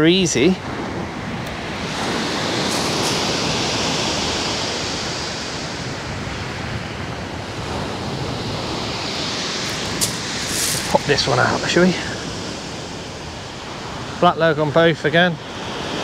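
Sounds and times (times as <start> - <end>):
wind: 0.0 - 16.0
surf breaking on shingle: 9.6 - 11.6.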